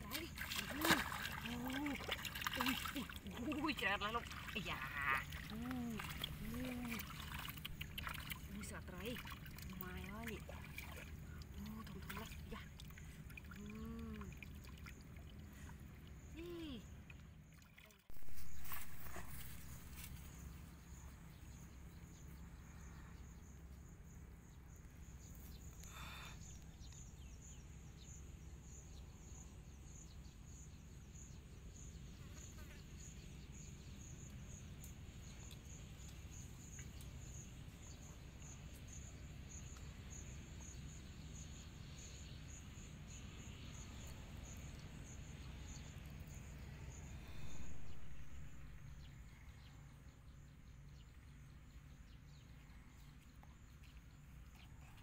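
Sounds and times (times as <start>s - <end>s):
insect chirping: 0.0s - 55.0s
low steady rumble: 33.2s - 55.0s.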